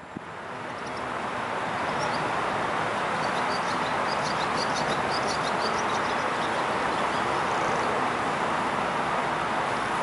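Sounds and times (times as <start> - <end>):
rushing wind: 0.0 - 10.0.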